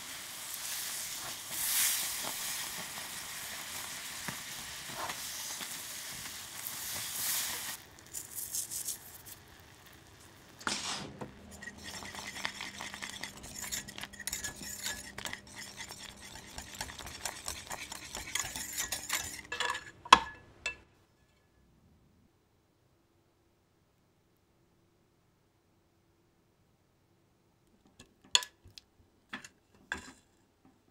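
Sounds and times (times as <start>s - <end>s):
sugar syrup hissing and bubbling: 0.0s - 19.5s
whisk clicking against pan: 11.5s - 19.7s.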